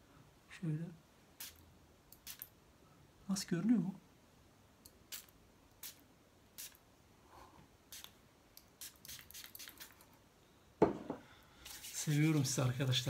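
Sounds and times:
hands rubbing rustles: 11.6 - 12.8.

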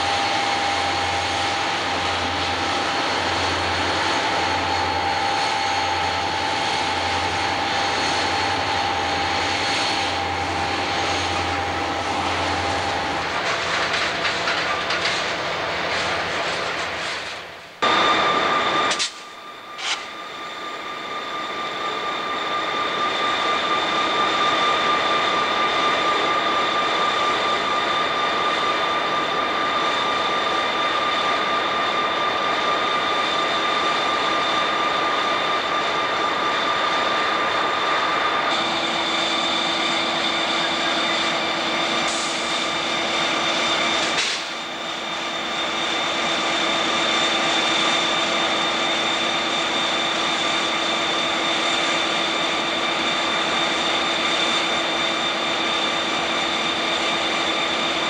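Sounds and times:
lower hum: 0.0 - 16.6
diesel locomotives passing: 0.0 - 58.0.

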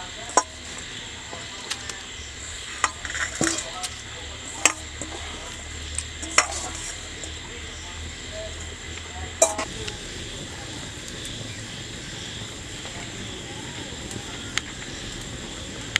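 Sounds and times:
food sizzling in hot oil: 0.0 - 15.9.

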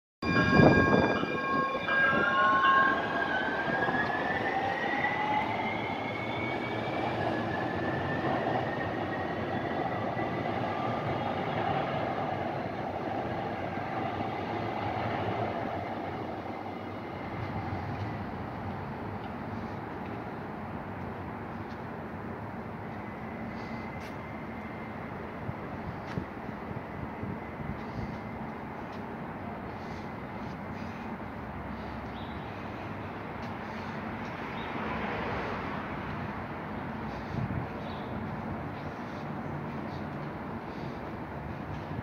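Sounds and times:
train whine rising in pitch: 0.2 - 19.9, 22.4 - 29.0
wheels rumbling on rail: 0.2 - 42.0.

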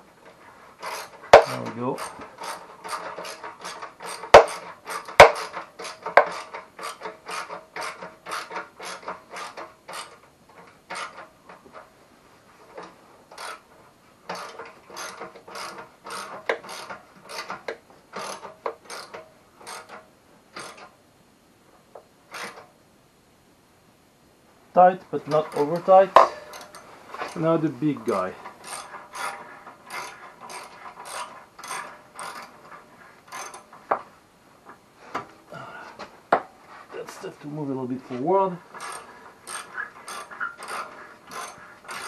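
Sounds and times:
ratchet wrench clicking: 0.8 - 10.2, 14.3 - 17.5, 18.2 - 20.0, 28.6 - 32.5, 33.3 - 33.6, 38.8 - 42.0.

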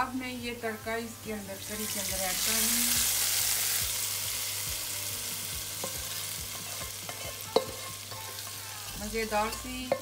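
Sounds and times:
hot oil sizzling: 0.0 - 10.0
spatula scraping frying pan: 5.8 - 10.0.

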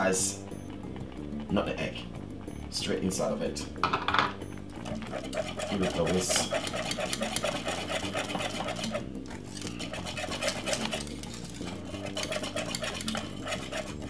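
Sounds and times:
whisk clicking and scraping in pan: 4.7 - 14.0.

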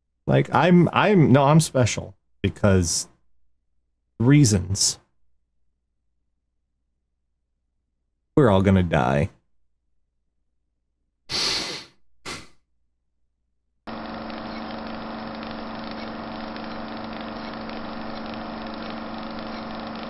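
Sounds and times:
short breathy hisses: 11.3 - 12.6.

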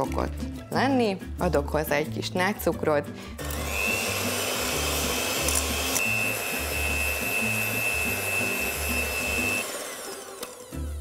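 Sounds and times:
electric hand mixer whining: 3.4 - 11.0.

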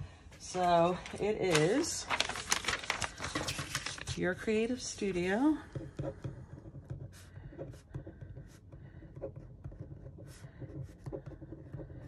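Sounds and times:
ballpoint pen scratching on paper: 5.7 - 12.0.

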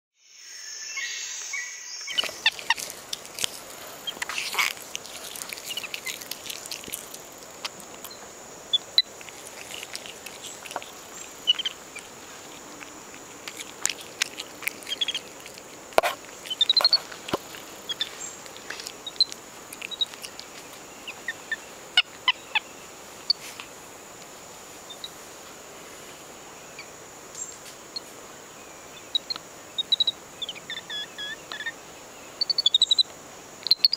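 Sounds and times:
monkey handling camera: 2.1 - 8.2, 9.0 - 20.8.

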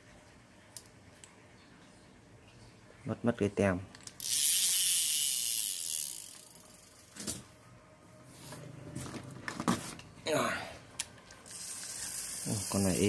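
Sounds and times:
fishing reel click: 4.0 - 7.1, 11.5 - 13.0
reel whirring: 4.2 - 7.2, 11.4 - 13.0.

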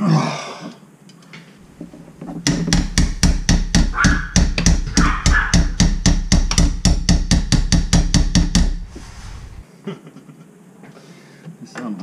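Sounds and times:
rapid hammer taps on metal: 2.3 - 8.9.

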